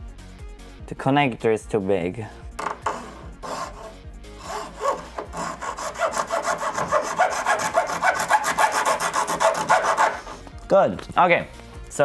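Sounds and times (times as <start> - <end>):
hand tool rasping: 2.6 - 10.5.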